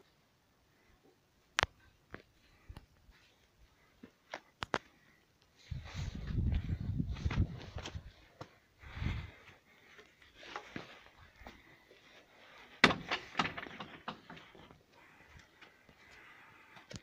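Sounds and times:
light footsteps: 5.6s - 12.9s
garden gate banging shut: 12.8s - 14.4s.

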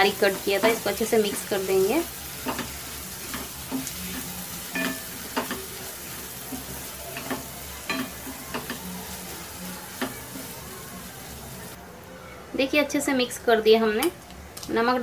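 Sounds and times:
masala sizzling in pan: 0.0s - 11.8s.

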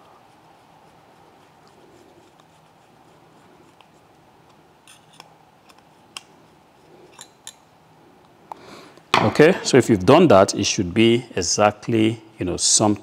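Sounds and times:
screwdriver clicking and scraping: 4.8s - 6.3s.

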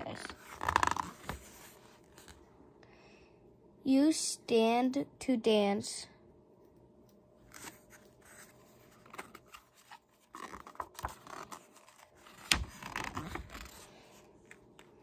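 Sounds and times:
book pages rustling: 0.0s - 2.4s, 7.4s - 15.0s.

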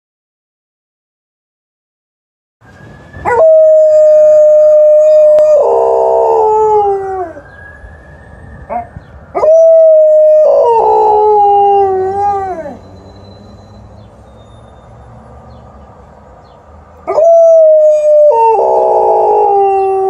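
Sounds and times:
ambulance siren: 2.6s - 20.0s
dog howling: 3.3s - 7.4s, 8.7s - 12.8s, 17.1s - 20.0s.

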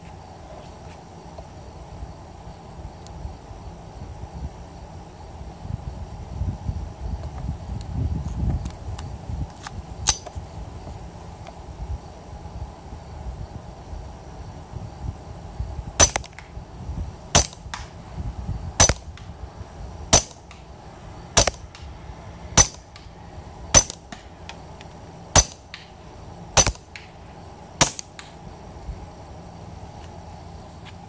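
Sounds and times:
suppressed pistol shots: 16.0s - 16.5s, 17.4s - 17.9s, 18.8s - 19.2s, 20.1s - 20.6s, 21.4s - 21.9s, 22.6s - 23.1s, 23.7s - 24.3s, 25.3s - 25.9s, 26.6s - 27.1s, 27.8s - 28.4s.

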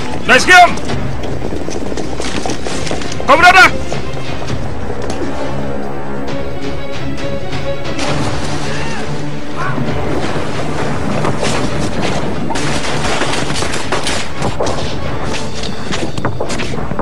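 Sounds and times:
background music: 0.0s - 17.0s
heavy booms and crashes: 8.0s - 17.0s.

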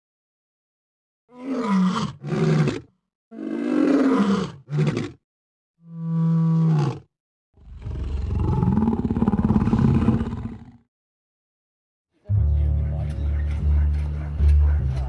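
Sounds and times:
lion roaring and grunting: 1.3s - 5.2s, 5.9s - 10.8s.

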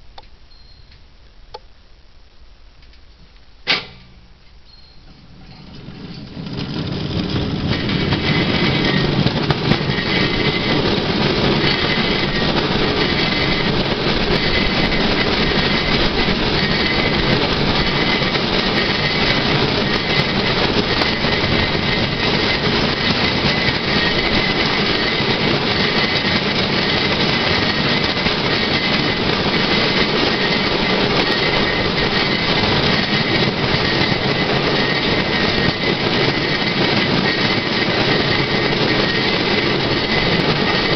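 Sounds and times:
steel wheels running on rails: 4.7s - 40.9s.

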